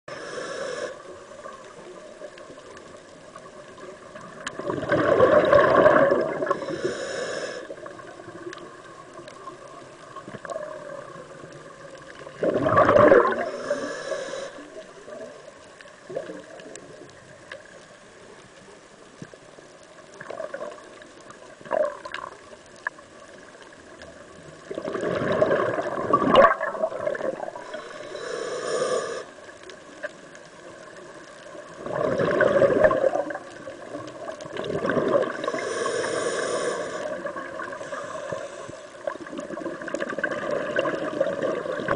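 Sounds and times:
regulator hiss: 0:00.1 - 0:01.5, 0:06.4 - 0:08.1, 0:13.4 - 0:15.5, 0:27.6 - 0:29.5, 0:35.3 - 0:39.1
underwater background: 0:00.1 - 0:41.9
exhaled bubbles rushing: 0:04.2 - 0:06.6, 0:10.4 - 0:13.6, 0:21.6 - 0:22.4, 0:24.7 - 0:27.6, 0:31.7 - 0:35.6, 0:39.0 - 0:41.9.

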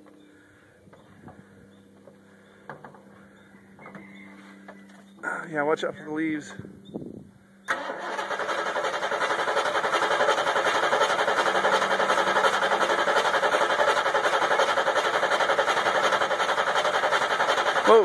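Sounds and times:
engine cranking without starting: 0:07.7 - 0:18.0.

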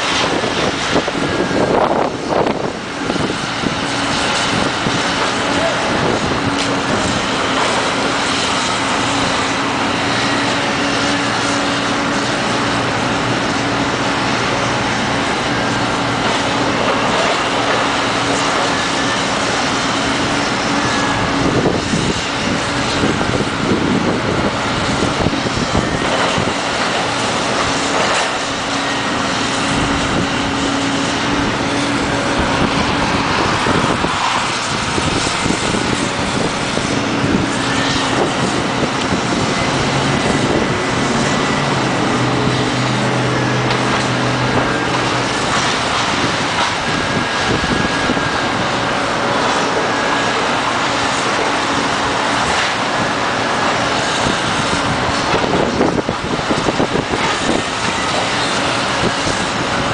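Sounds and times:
excavator diesel engine droning: 0:00.0 - 0:59.9.

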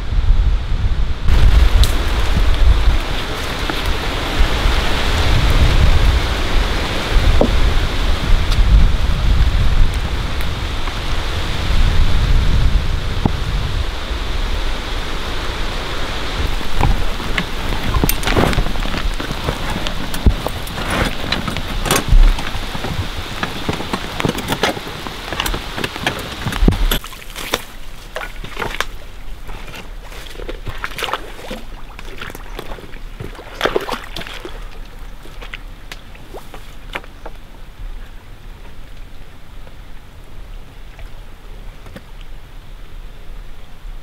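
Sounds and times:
rain pattering on forest floor: 0:01.3 - 0:11.6, 0:13.0 - 0:37.8
pole splashing in water: 0:16.4 - 0:35.6
metal traps clicking: 0:16.6 - 0:27.1.

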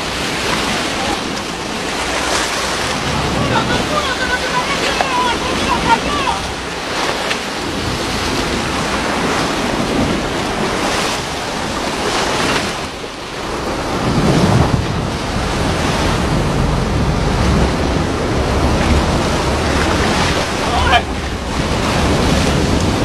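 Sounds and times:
low wind rumble: 0:00.0 - 0:23.0
sea water splashing: 0:00.0 - 0:23.0
wind buffeting microphone: 0:00.0 - 0:23.0.

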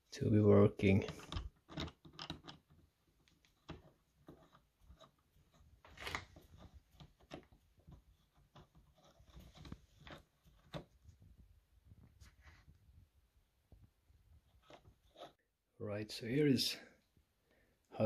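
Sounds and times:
small metal clicks: 0:01.0 - 0:05.1.

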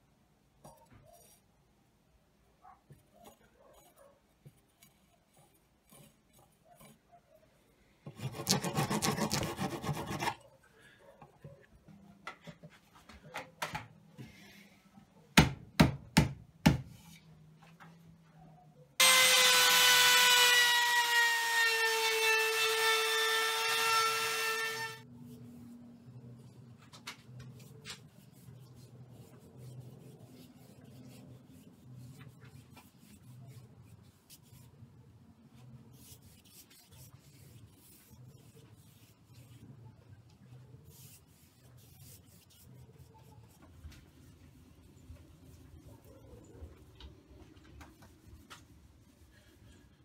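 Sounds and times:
rasping on wood: 0:08.1 - 0:10.5.

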